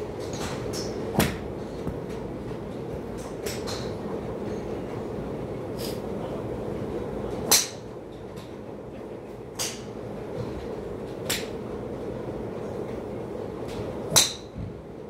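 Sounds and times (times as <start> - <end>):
steady low hum: 0.0 - 15.0
golf drivers striking balls: 0.2 - 2.3, 7.4 - 7.8, 14.1 - 14.5.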